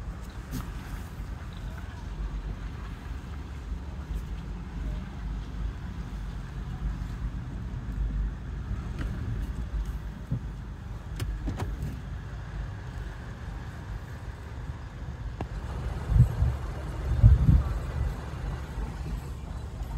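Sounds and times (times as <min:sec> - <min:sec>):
car cabin rumble: 0:08.5 - 0:13.1, 0:14.5 - 0:19.9.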